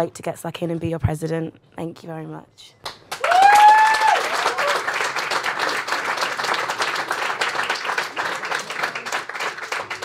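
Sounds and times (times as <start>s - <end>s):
crowd applauding: 3.1s - 10.0s.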